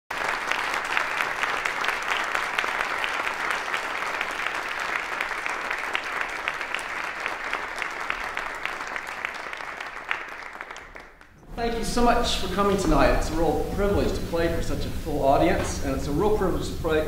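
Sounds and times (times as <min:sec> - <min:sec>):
audience applauding: 0:00.1 - 0:14.3.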